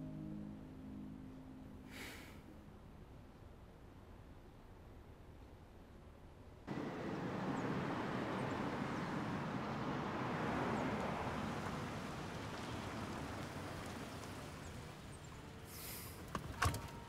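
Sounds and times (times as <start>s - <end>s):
car driving past: 6.7s - 15.8s.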